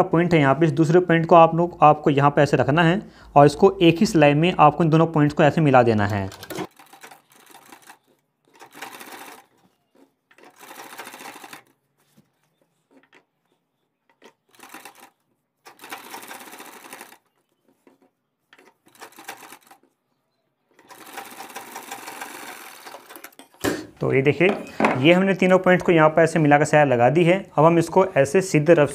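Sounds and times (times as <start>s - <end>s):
sewing machine stitching: 5.9s - 11.8s, 14.1s - 20.0s, 20.7s - 23.4s.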